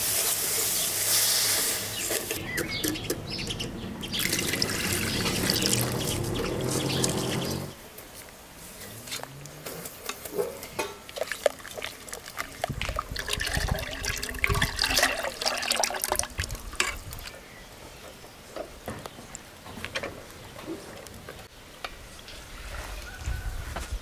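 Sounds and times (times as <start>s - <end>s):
milk pouring into a pot: 4.2s - 6.0s, 11.1s - 17.3s.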